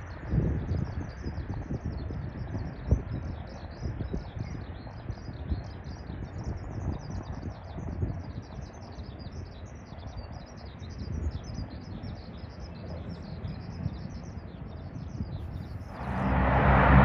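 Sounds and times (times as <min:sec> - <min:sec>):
small birds chirping: 0:00.0 - 0:16.2
low uneven rumble: 0:15.4 - 0:17.0.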